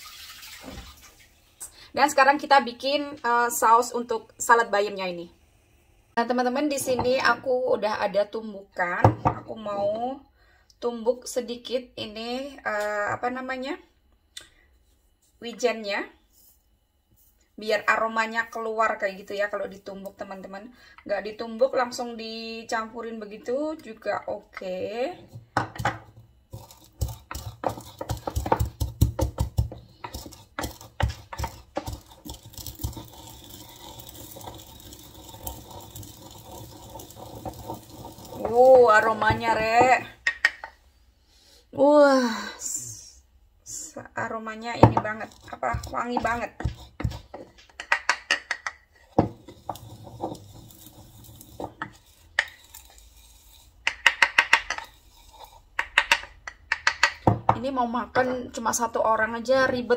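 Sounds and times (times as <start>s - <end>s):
pestle grinding: 25.6s - 40.6s, 44.8s - 57.4s
wooden pestle pounding in mortar: 26.6s - 40.6s, 44.8s - 50.8s.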